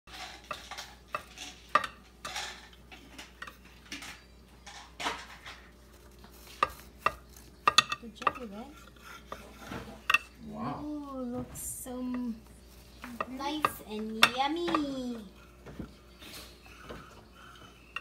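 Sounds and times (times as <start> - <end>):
knife sawing through bread: 8.4 - 10.0.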